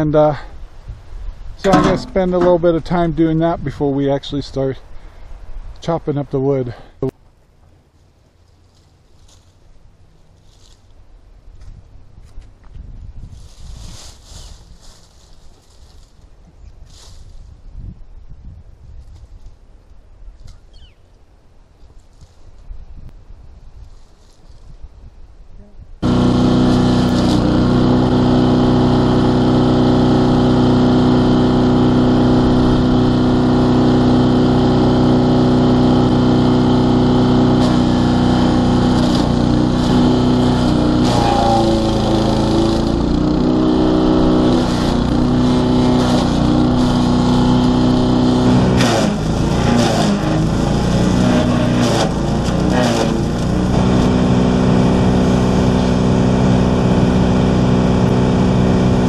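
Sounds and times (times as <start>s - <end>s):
wood chipper engine running: 1.6s - 2.6s, 26.0s - 59.0s.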